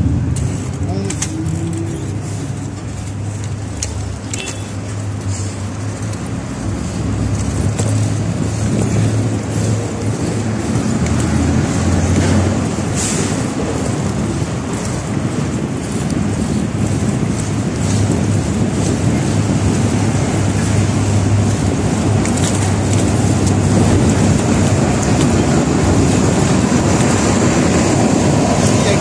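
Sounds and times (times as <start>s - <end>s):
city street traffic rumble: 0.0s - 29.0s.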